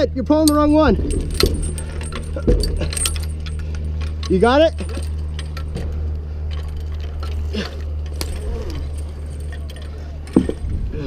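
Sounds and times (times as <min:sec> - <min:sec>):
steady low rumble: 0:00.0 - 0:11.0
metal hardware clinking: 0:00.3 - 0:11.0.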